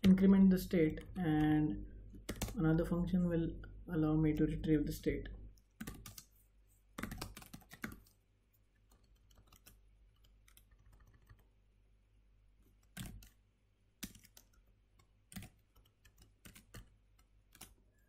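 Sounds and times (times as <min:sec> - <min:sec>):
keyboard keystrokes: 0:02.2 - 0:02.6, 0:05.8 - 0:06.3, 0:07.0 - 0:08.1, 0:12.8 - 0:13.4, 0:14.0 - 0:17.8.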